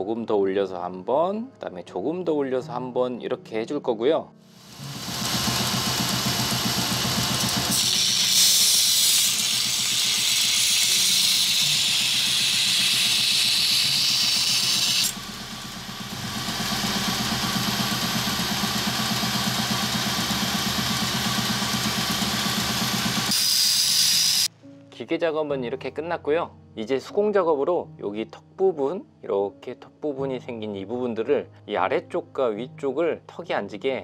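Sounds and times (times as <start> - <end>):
belt grinder motor hum: 4.6 - 24.5
blade grinding on belt: 4.6 - 24.5.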